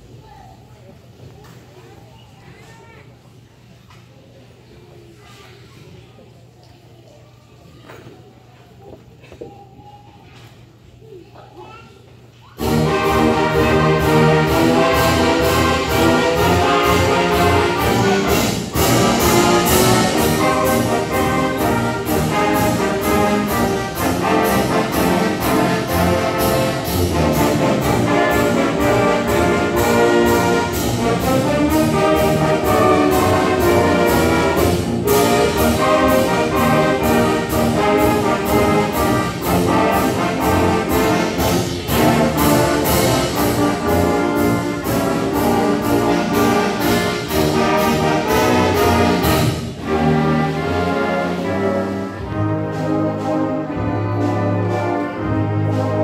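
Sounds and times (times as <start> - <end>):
concert band playing: 12.6 - 56.0
steady drum beat: 12.8 - 51.8.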